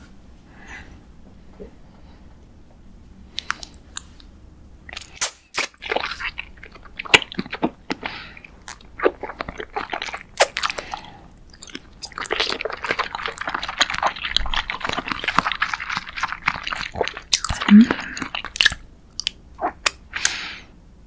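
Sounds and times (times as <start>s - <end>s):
chewing wet clicks and smacks: 3.3s - 4.3s, 4.9s - 20.0s.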